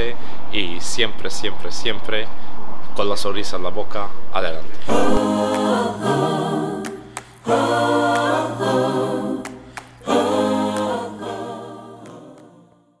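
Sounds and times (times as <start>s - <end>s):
choir singing unaccompanied: 4.8s - 13.0s.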